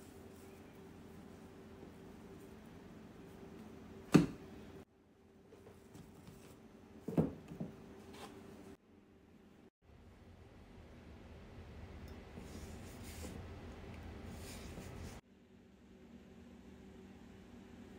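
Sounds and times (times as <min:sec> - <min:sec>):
thump on wooden countertop: 0:07.1 - 0:07.7.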